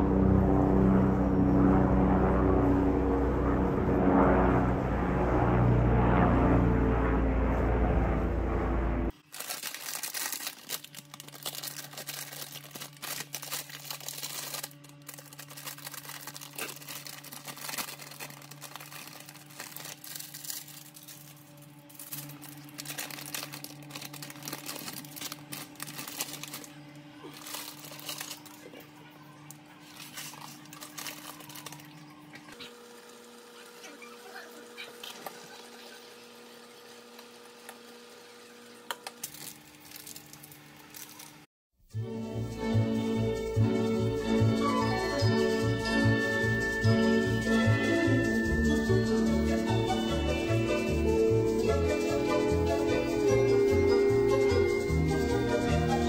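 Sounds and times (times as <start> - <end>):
low steady hum: 0.0 - 34.0
plastic packets crinkling: 9.2 - 28.8, 29.4 - 32.0, 39.0 - 41.5
scissors cutting plastic: 9.2 - 28.8, 29.5 - 32.0, 38.9 - 41.4
background music: 41.9 - 56.0.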